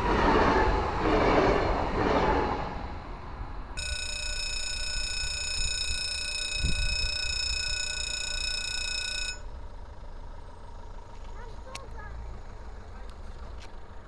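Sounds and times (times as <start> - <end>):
level crossing warning tone: 3.8 - 12.2.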